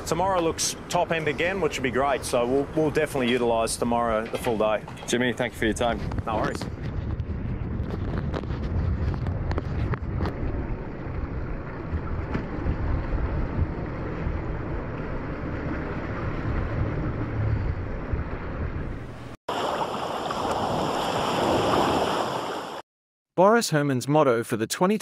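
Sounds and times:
wind buffeting microphone: 0:01.2 - 0:19.4
choppy sea water: 0:06.0 - 0:18.8, 0:19.5 - 0:22.8.

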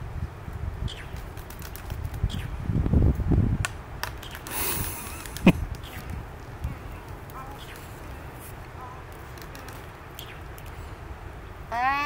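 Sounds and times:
birds clacking bills: 0:00.9 - 0:02.6, 0:04.0 - 0:06.2, 0:06.8 - 0:11.0.

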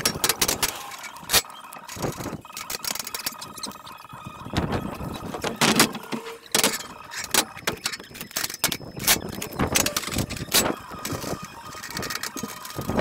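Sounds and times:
metal scaffold tubes clanking: 0:04.9 - 0:13.0.

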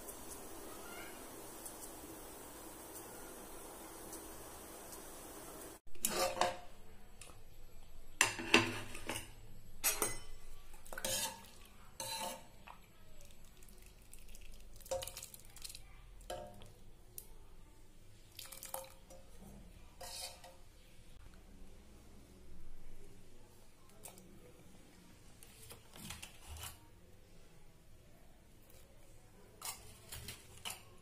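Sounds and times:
metal cookware clinking: 0:06.0 - 0:07.3, 0:08.2 - 0:12.6, 0:20.0 - 0:20.6.

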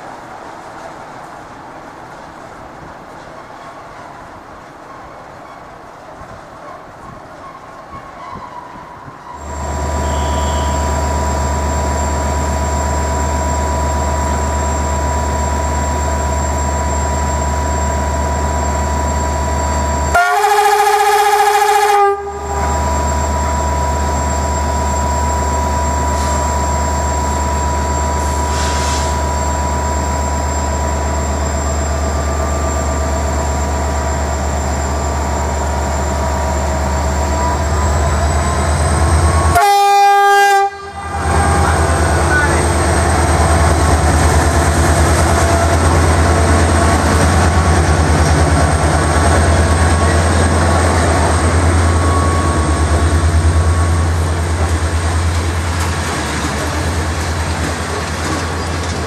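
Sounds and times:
two-tone train horn: 0:09.4 - 0:11.2, 0:20.1 - 0:22.9, 0:39.3 - 0:42.6
diesel locomotive idling: 0:09.4 - 0:59.0.

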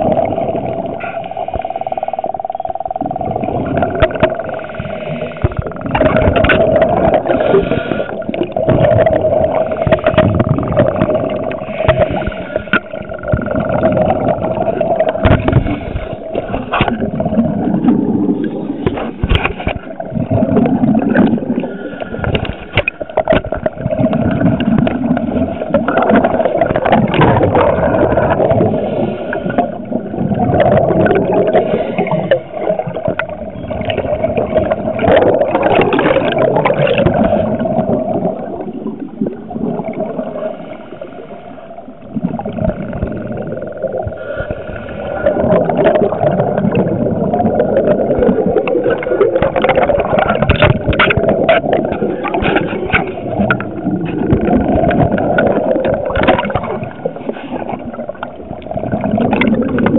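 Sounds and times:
steady hum: 0:00.0 - 0:57.4
underwater bubbling exhalations: 0:00.0 - 0:59.9.

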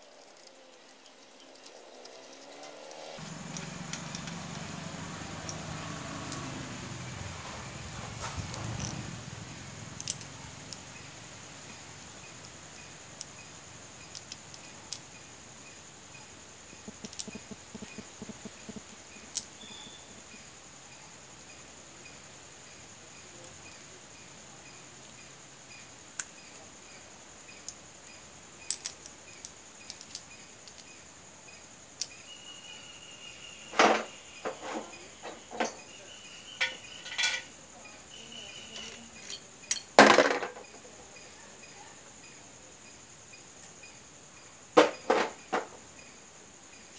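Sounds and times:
faint high-pitched whine: 0:00.0 - 0:46.9
metal parts clicking: 0:08.5 - 0:09.0, 0:10.0 - 0:11.0, 0:14.0 - 0:15.1, 0:16.8 - 0:19.8, 0:28.7 - 0:30.9, 0:36.6 - 0:37.5
metal parts clinking together: 0:08.5 - 0:09.0, 0:10.0 - 0:10.3, 0:16.9 - 0:18.0, 0:28.7 - 0:30.9, 0:36.6 - 0:37.5, 0:38.7 - 0:40.8.

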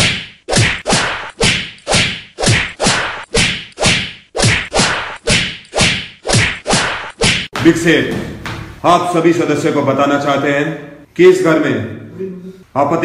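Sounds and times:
punch sound effects: 0:00.0 - 0:07.5.

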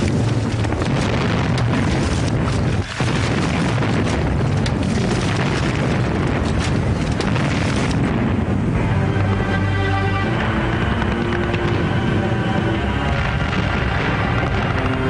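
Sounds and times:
sharp cracks: 0:00.0 - 0:08.7, 0:10.2 - 0:15.0
rumble of explosions: 0:00.0 - 0:15.0
music: 0:07.4 - 0:15.0.

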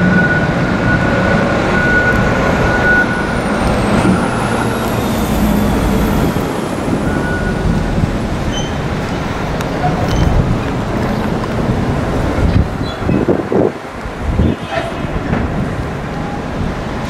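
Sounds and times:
high-pitched tone: 0:00.0 - 0:09.3
diesel engine under load: 0:00.0 - 0:17.0.

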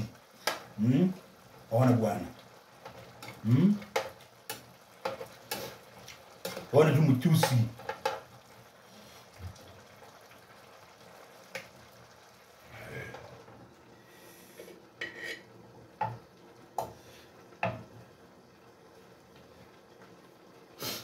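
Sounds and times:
faint steady hiss: 0:00.0 - 0:21.0
metal clanking on frying pan: 0:02.8 - 0:05.8, 0:06.4 - 0:06.7, 0:07.4 - 0:08.3.

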